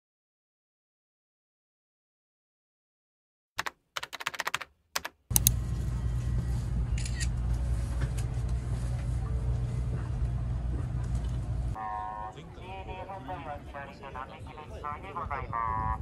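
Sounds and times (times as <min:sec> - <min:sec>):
train rumble from inside carriage: 0:05.4 - 0:11.8.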